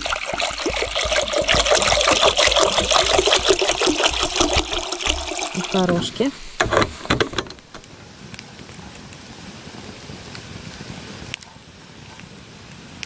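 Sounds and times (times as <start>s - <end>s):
plastic water jug knocks: 0.0s - 7.9s
campfire crackling and popping: 7.7s - 13.0s.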